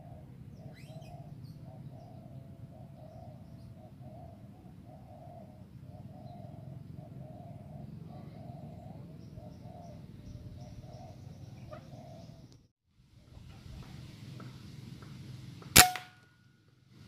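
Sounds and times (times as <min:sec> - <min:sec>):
bird cooing: 0:00.0 - 0:12.5.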